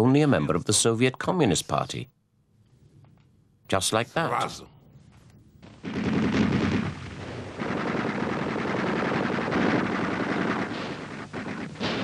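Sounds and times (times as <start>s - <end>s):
rapid gunfire: 5.7s - 12.0s.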